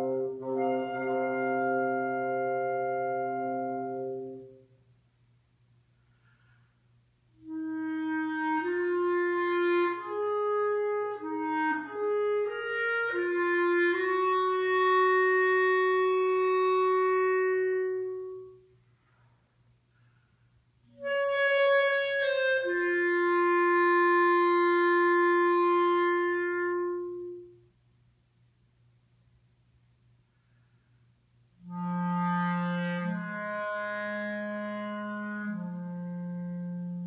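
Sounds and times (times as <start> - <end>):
wind instrument solo: 0.0 - 4.8, 7.3 - 18.8, 20.8 - 27.7, 31.6 - 37.0.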